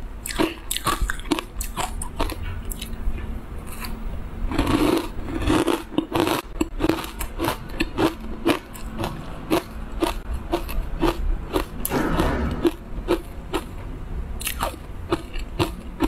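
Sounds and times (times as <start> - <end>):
crunchy chewing: 0.2 - 13.8, 14.4 - 16.0.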